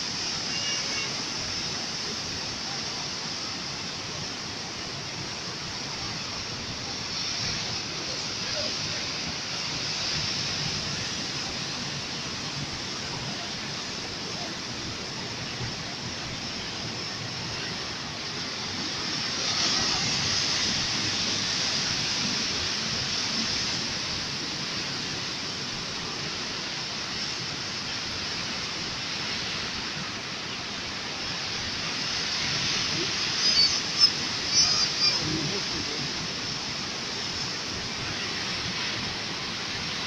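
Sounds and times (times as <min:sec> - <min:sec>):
sea surf washing over rocks: 0:00.0 - 0:40.0.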